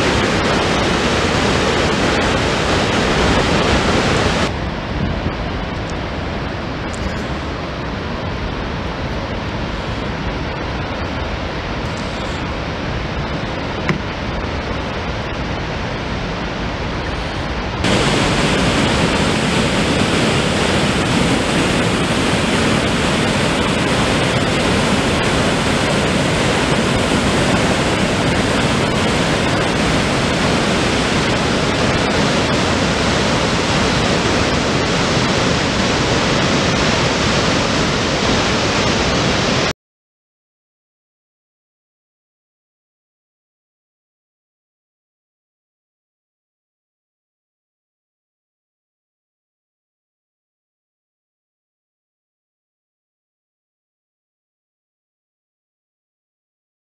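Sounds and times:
water rushing down spillway: 0.0s - 39.7s.

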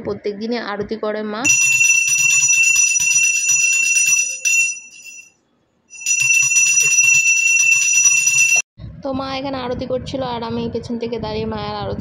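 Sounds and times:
hand bell ringing rapidly: 1.5s - 5.3s, 5.9s - 8.6s.

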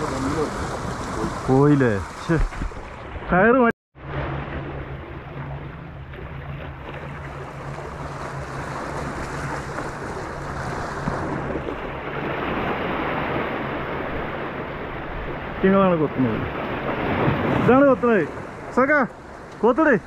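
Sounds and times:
waves splashing against concrete: 0.0s - 20.0s
low steady hum: 4.0s - 12.3s.

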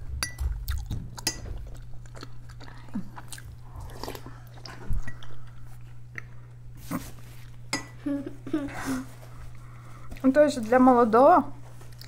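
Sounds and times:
soup sipping and chewing: 0.5s - 7.6s
spoons clinking on ceramic bowls: 7.7s - 8.0s
person humming: 8.0s - 9.1s.

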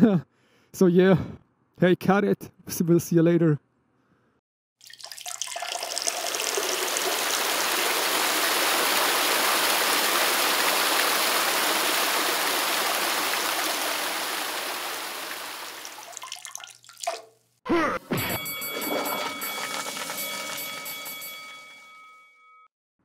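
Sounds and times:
toilet flushing: 4.8s - 17.1s, 18.6s - 21.7s.

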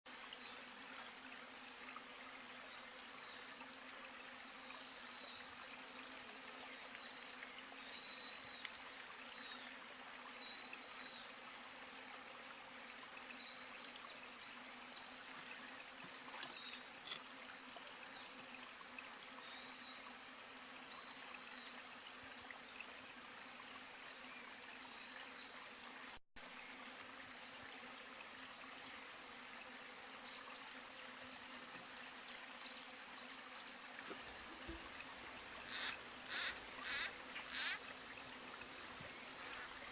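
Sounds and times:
running water: 0.1s - 39.9s
small animal chirping: 35.6s - 37.8s.

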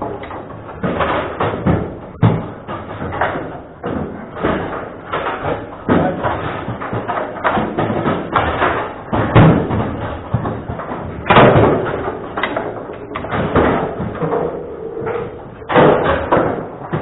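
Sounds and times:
table football knocks and slams: 0.8s - 12.6s.

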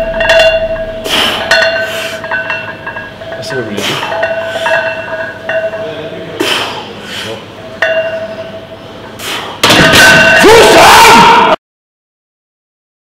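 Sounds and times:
barbell plates clinking: 0.0s - 6.0s, 7.8s - 8.7s.

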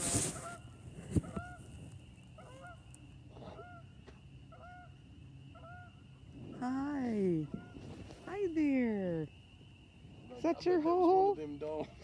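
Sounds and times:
geese honking: 0.0s - 6.1s.

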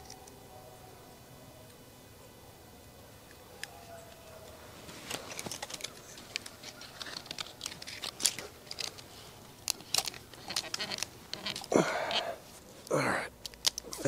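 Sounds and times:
cord rustling and scraping: 3.6s - 14.0s.

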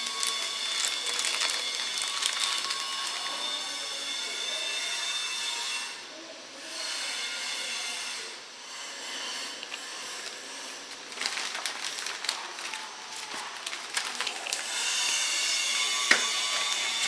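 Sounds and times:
plastic bag rustling and crinkling: 0.0s - 3.6s, 9.6s - 17.0s.

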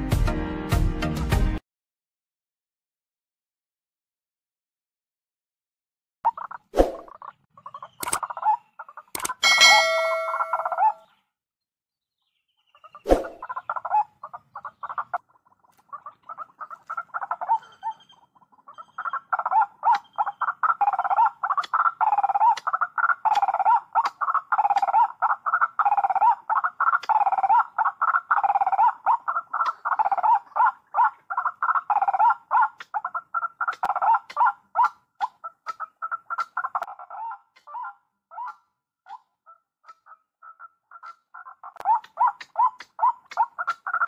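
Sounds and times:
waterhen calling: 6.3s - 11.2s, 12.6s - 44.0s
sharp click: 8.0s - 8.2s, 9.2s - 10.0s.

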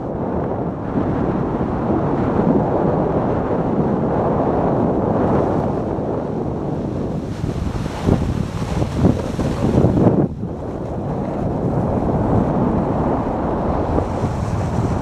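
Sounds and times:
wind on microphone: 0.0s - 15.0s
luge runners scraping over snow: 5.2s - 15.0s.

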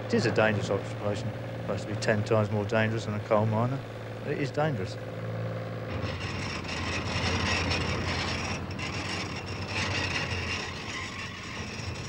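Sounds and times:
winch humming and clattering: 5.8s - 12.0s.

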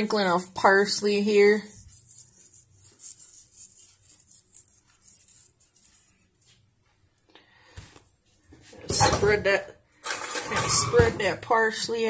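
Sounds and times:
fingers crumbling dried herbs: 1.6s - 6.6s.

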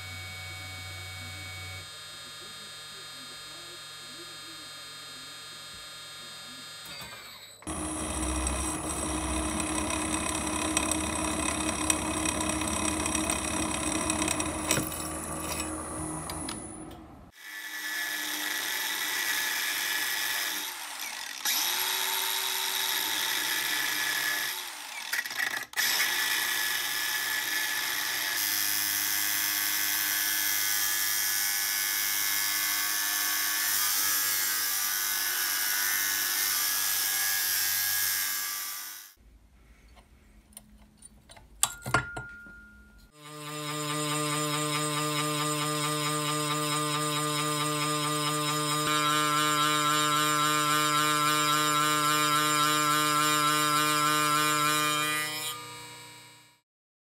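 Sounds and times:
angle grinder cutting steel: 0.0s - 39.2s, 43.1s - 56.6s
milling machine cutting steel: 0.8s - 30.1s.

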